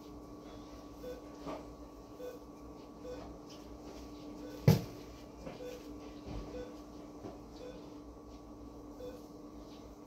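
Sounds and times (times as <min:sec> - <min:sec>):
equipment hum: 0:00.0 - 0:10.0
soft electronic beeps: 0:09.0 - 0:09.3.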